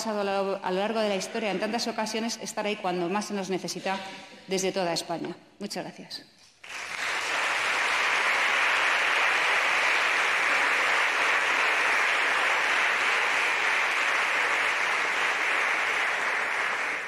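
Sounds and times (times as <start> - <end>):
crowd applauding: 6.6 - 17.0.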